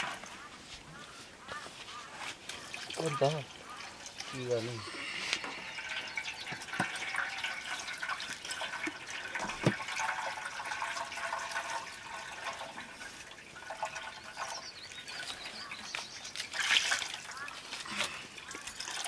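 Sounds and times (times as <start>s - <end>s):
liquid pouring into metal pot: 5.5s - 17.6s, 18.4s - 19.0s.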